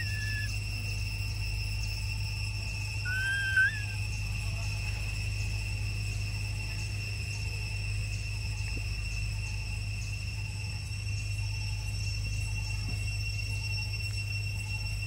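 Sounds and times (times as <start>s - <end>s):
baby monkey squeaking: 0.0s - 0.5s, 3.1s - 4.0s
high-pitched ringing drone: 0.0s - 15.0s.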